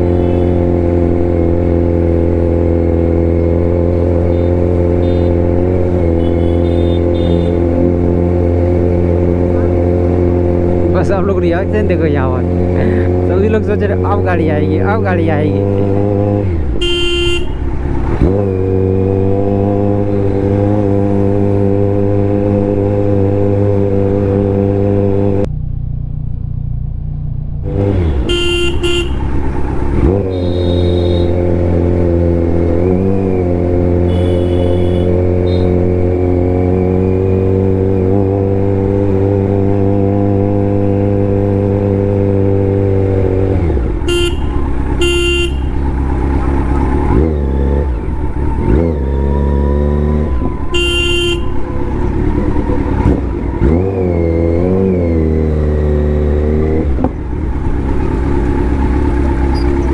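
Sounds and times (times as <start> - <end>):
car horns honking: 0.0 - 0.7, 4.3 - 7.7, 16.7 - 17.7, 27.8 - 29.4, 30.0 - 31.6, 34.0 - 35.9, 44.0 - 46.0, 50.5 - 51.9.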